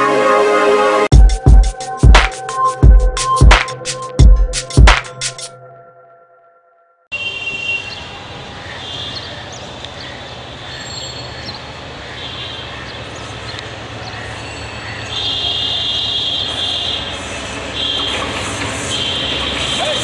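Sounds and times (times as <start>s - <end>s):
diesel locomotive engine rumble: 16.5s - 20.0s.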